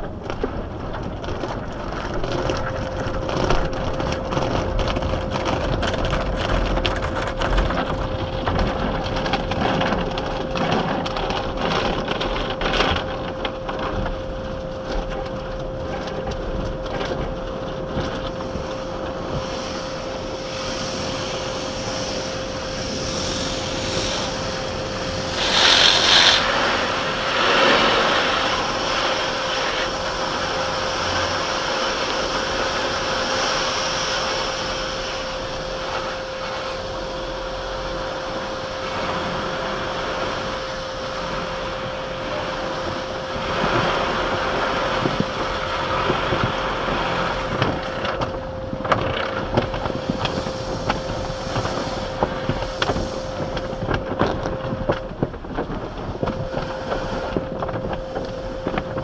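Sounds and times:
car wash scraping: 0:00.0 - 0:59.0
steady hum: 0:00.0 - 0:59.0
rushing hiss: 0:19.4 - 0:36.9, 0:50.0 - 0:53.8.

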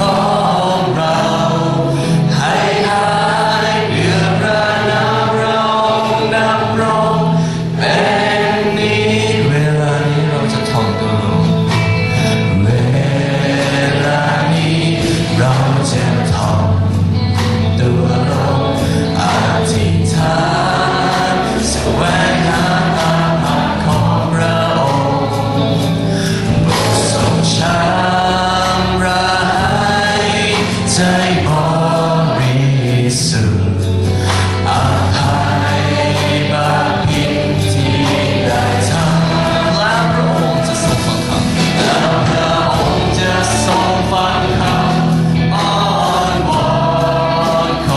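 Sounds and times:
band with piano: 0:00.0 - 0:47.9
man singing into microphone: 0:00.0 - 0:47.9
many voices singing: 0:00.0 - 0:47.9.

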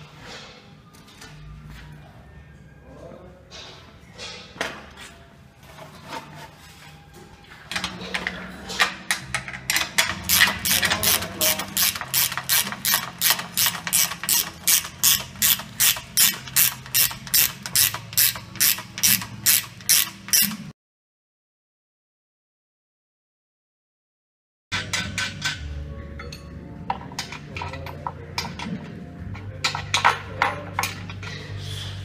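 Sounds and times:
ratchet wrench clicking: 0:09.7 - 0:20.7.

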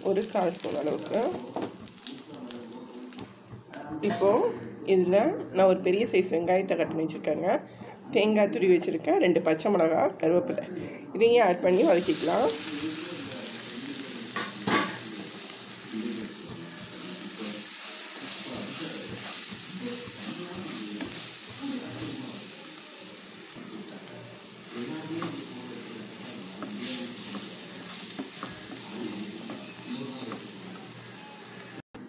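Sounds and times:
food sizzling in hot oil: 0:00.0 - 0:03.4, 0:11.7 - 0:31.8
wooden spatula scraping pan: 0:23.6 - 0:31.2.

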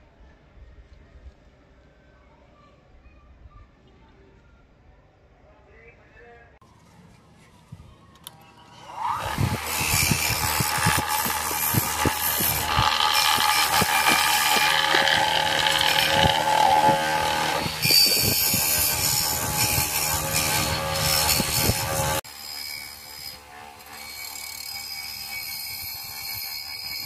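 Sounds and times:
bench grinder motor hum: 0:08.7 - 0:27.0
wire brush rasping on metal: 0:08.9 - 0:27.0.

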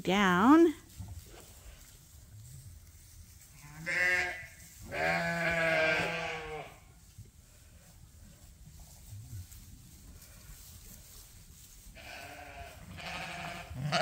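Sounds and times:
sheep bleating: 0:03.6 - 0:06.8, 0:12.0 - 0:14.0.

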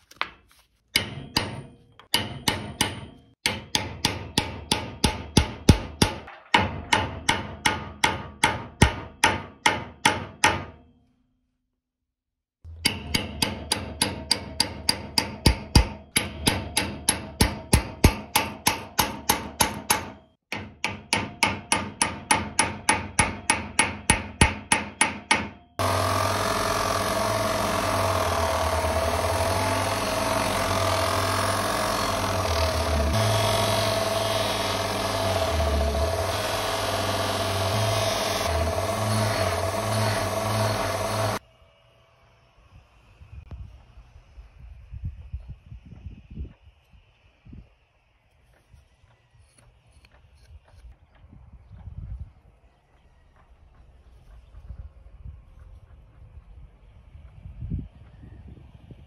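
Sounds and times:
polishing wheel whine: 0:25.8 - 0:41.4.

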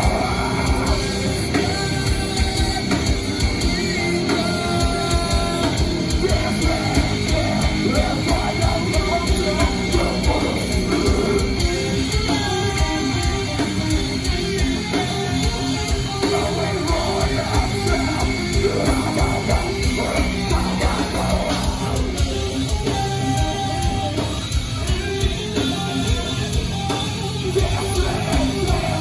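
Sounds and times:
bass guitar: 0:00.0 - 0:29.0
distorted electric guitars: 0:00.0 - 0:29.0
fast drum kit: 0:00.0 - 0:29.0.

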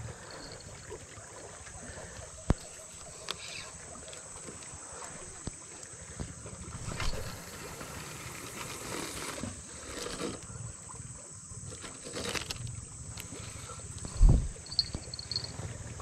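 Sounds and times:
reel clicks and line rustles: 0:02.4 - 0:10.5, 0:11.6 - 0:15.5
high-pitched hum: 0:09.5 - 0:15.8.

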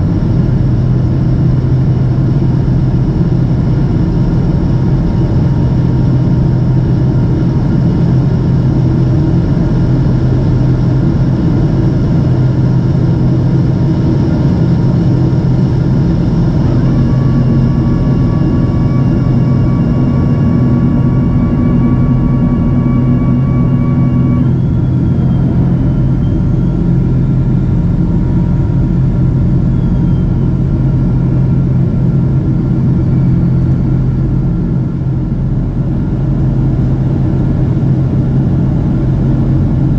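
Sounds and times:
jet engine drone in cabin: 0:00.0 - 0:39.9
low hum: 0:00.0 - 0:39.9.

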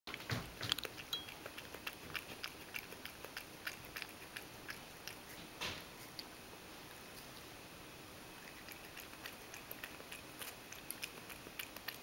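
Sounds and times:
cat lapping milk from metal bowl: 0:00.2 - 0:05.3, 0:08.4 - 0:12.0.

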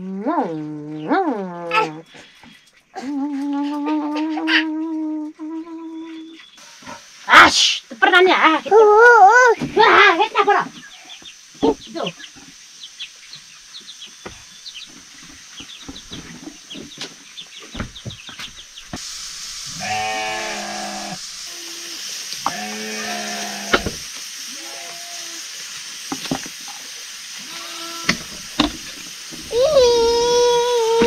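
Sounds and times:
steady hiss: 0:06.5 - 0:31.0
sheep bleating: 0:19.7 - 0:21.7, 0:22.4 - 0:23.8, 0:24.5 - 0:25.4, 0:27.4 - 0:28.2.

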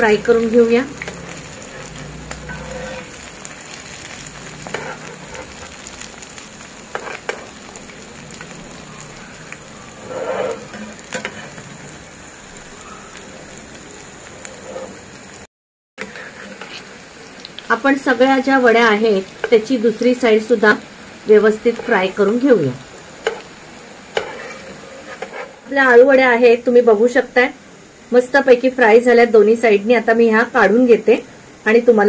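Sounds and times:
food sizzling in hot oil: 0:00.0 - 0:32.0
metal spatula scraping a pan: 0:00.3 - 0:06.0, 0:06.9 - 0:07.8, 0:08.4 - 0:12.0, 0:14.4 - 0:15.2, 0:16.0 - 0:16.9, 0:21.7 - 0:22.2, 0:23.2 - 0:23.5, 0:24.1 - 0:25.6.

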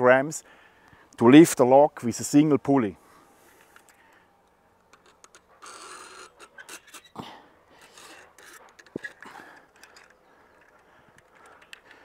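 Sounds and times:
man breathing effortfully: 0:00.4 - 0:01.2, 0:07.1 - 0:12.0
rope rustling through wooden pulley: 0:04.8 - 0:12.0.

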